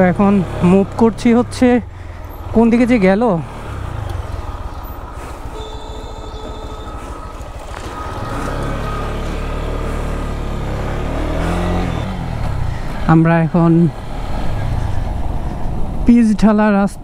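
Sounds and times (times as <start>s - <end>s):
motorcycle engine running: 0.0s - 15.4s.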